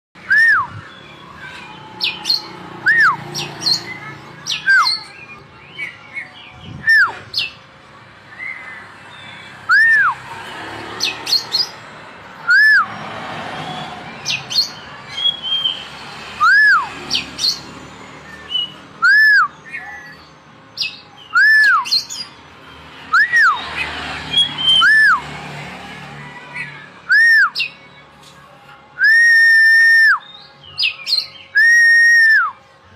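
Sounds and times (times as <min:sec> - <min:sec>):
bird whistling song: 0:00.2 - 0:07.6, 0:08.3 - 0:10.2, 0:12.4 - 0:13.1, 0:13.7 - 0:17.7, 0:18.3 - 0:22.4, 0:23.1 - 0:25.3, 0:27.1 - 0:27.8, 0:29.0 - 0:32.6.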